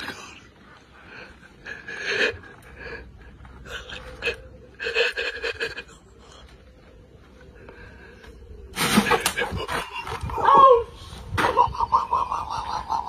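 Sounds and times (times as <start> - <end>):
person panting and gasping: 0.0 - 6.8.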